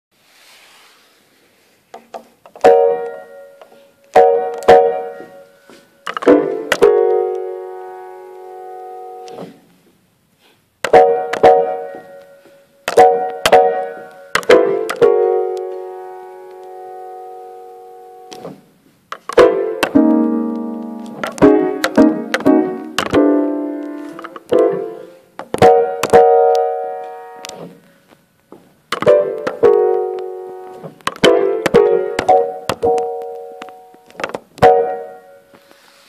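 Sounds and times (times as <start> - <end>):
grand piano chords: 2.6 - 9.4, 10.9 - 18.6, 19.3 - 27.9, 28.9 - 35.7.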